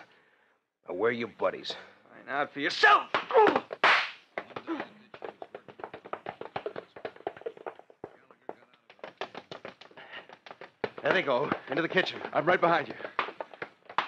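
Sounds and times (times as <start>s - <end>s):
hurried footsteps on hard floor: 3.1s - 14.0s.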